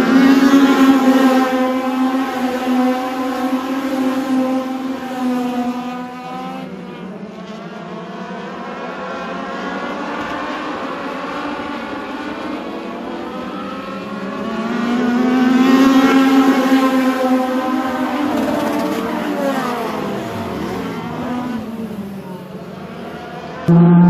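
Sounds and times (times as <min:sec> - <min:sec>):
race car engine accelerating: 0:09.0 - 0:24.0.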